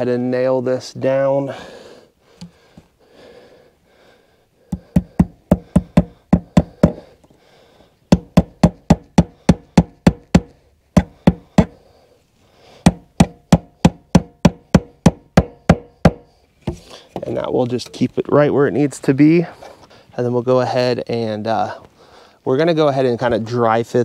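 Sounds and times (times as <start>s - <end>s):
hammer striking staple into wood: 4.7s - 7.0s, 8.1s - 11.8s, 12.8s - 16.8s.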